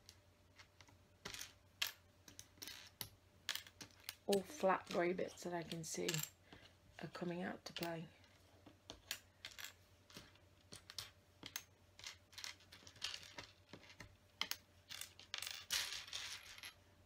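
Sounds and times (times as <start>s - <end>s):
plastic tiles clicking on table: 8.9s - 16.5s.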